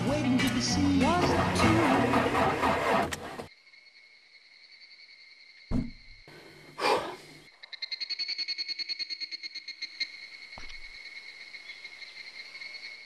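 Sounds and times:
music: 0.0s - 3.2s
frogs croaking: 3.5s - 13.0s
insects chirping in a high trill: 3.5s - 13.0s
thump: 5.7s - 6.2s.

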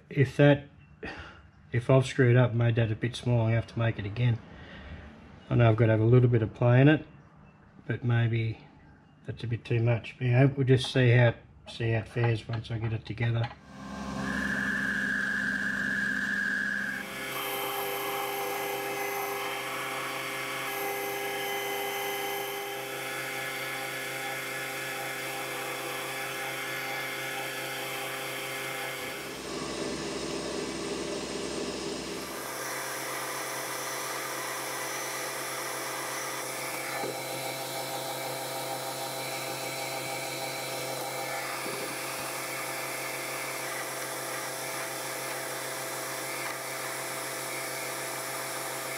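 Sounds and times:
metal lathe whining: 13.6s - 48.9s.

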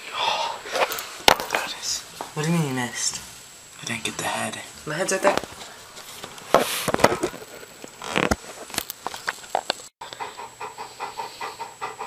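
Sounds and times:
dog panting: 10.0s - 12.0s.

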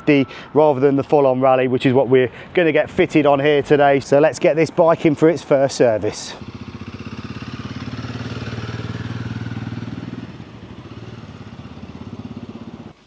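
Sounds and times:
motorcycle engine running: 6.4s - 13.0s.

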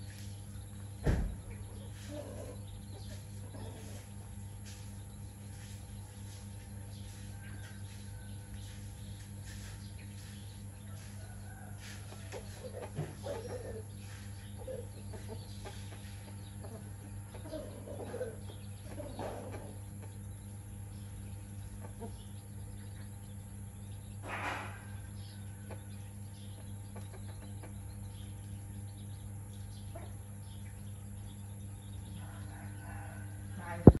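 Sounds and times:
hen clucking: 1.5s - 4.9s, 5.5s - 23.4s, 24.2s - 28.8s.

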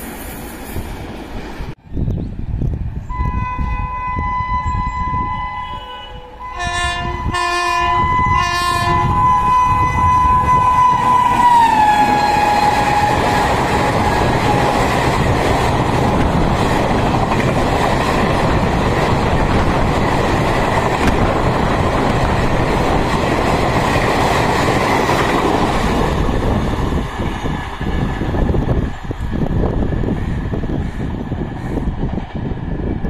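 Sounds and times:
train horn: 3.1s - 14.6s.

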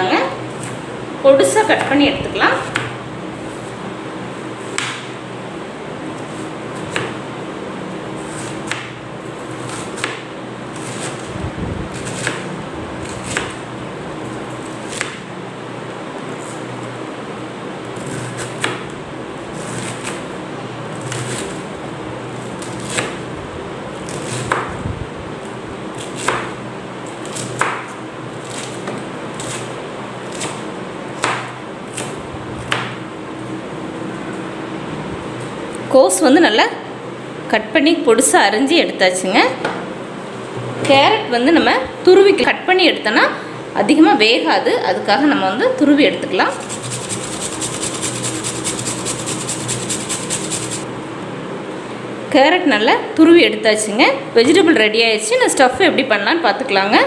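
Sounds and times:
steady background hum: 0.0s - 57.0s
knife chopping on plastic board: 4.7s - 5.2s, 8.7s - 9.0s, 31.2s - 32.1s.

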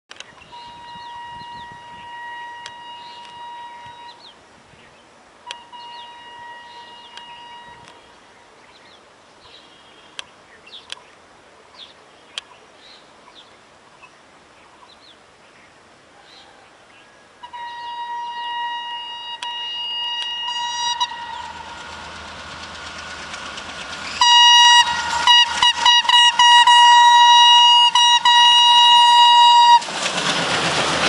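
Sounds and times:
birds chirping: 0.2s - 17.1s
locomotive horn blast: 0.4s - 4.4s, 5.4s - 8.1s, 17.4s - 23.3s, 24.0s - 30.0s.

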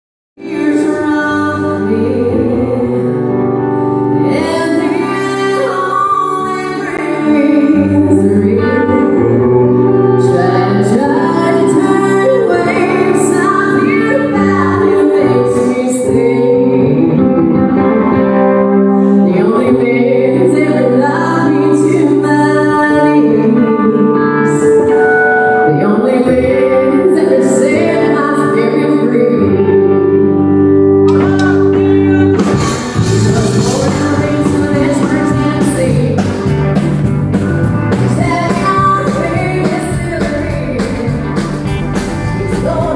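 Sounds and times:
woman singing into a microphone: 0.4s - 31.3s, 33.0s - 36.4s, 38.1s - 41.4s, 42.4s - 42.9s
electric guitar: 0.4s - 42.9s
keyboard: 0.4s - 42.9s
drums: 31.0s - 42.9s.

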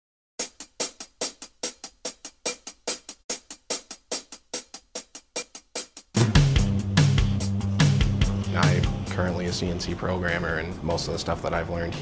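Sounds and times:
bright percussion beat: 0.4s - 9.7s.

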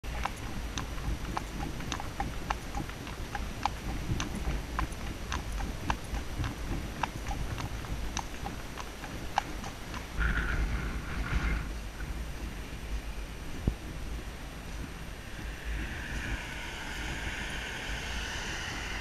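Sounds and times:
horse hooves on tarmac: 0.0s - 17.3s
low rumble: 0.0s - 19.0s.

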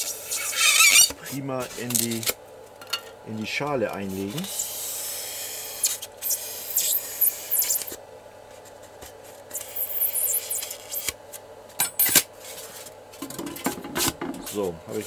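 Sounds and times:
knife scraping through foam: 0.0s - 2.2s.

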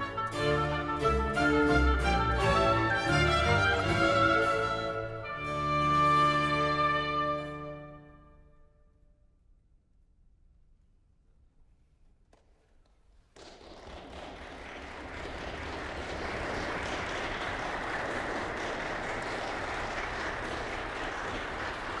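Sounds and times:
applause: 13.2s - 22.0s.

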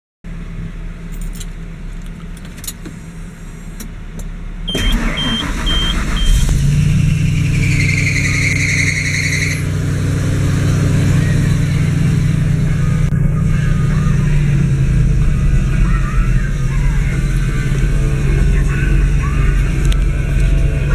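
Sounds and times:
truck engine starting and idling: 0.3s - 20.9s
short beeps: 4.7s - 6.5s.

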